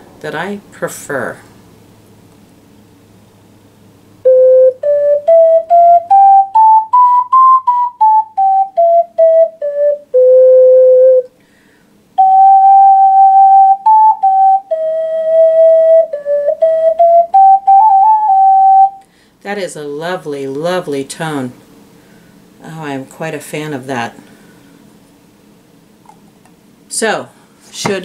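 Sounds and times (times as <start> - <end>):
ocarina playing: 4.2 - 11.3, 12.2 - 19.0.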